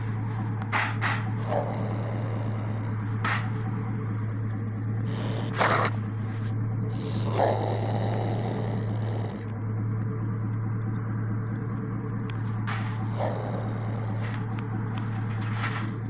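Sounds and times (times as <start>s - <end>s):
raccoon growling: 1.0s - 3.9s, 5.0s - 9.6s, 12.8s - 16.0s.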